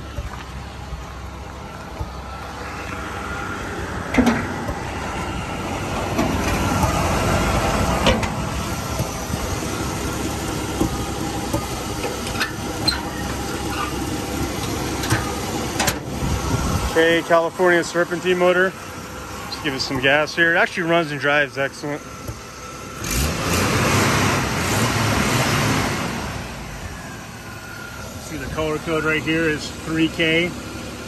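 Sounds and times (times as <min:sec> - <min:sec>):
car engine idling: 0:00.0 - 0:31.0
car hood clunking open: 0:04.0 - 0:16.1.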